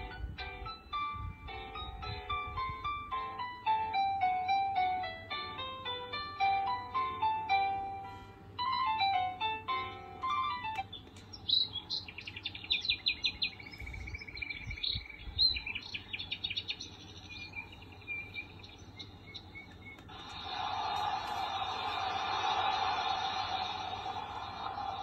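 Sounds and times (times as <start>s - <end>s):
steady rushing noise: 20.1s - 25.0s.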